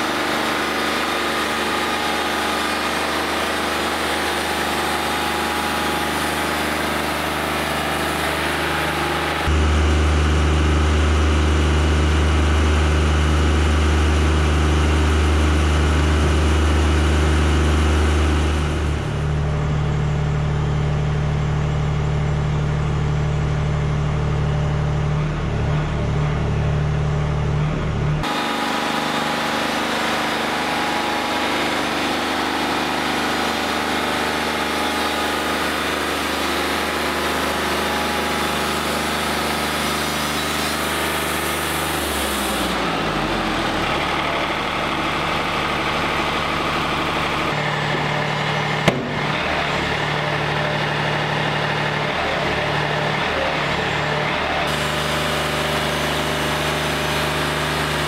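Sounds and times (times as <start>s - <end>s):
band sawmill engine running: 0.0s - 58.0s.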